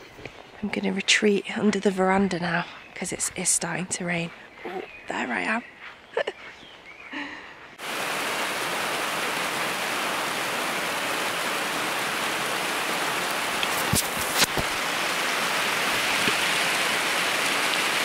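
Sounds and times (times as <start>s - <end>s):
heavy rain falling: 7.8s - 18.0s.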